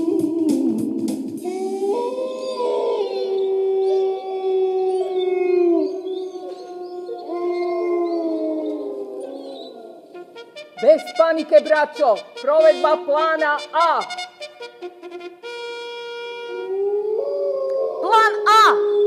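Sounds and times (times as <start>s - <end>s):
wolf howling: 1.5s - 10.2s, 16.5s - 19.0s.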